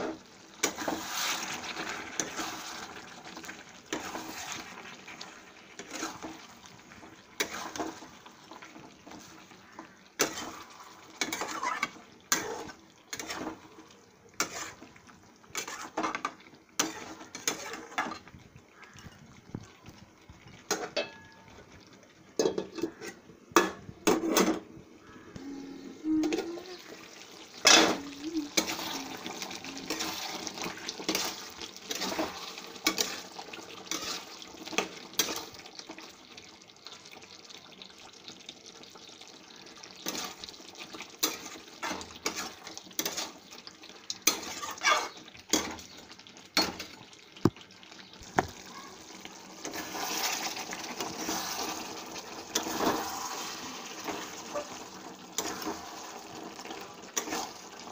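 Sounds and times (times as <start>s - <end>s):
frying sizzle: 0.0s - 57.9s
spatula scraping metal pan: 5.8s - 6.4s, 7.4s - 8.0s, 10.2s - 13.6s, 14.4s - 14.9s, 15.5s - 18.2s, 33.9s - 35.4s, 44.2s - 45.8s.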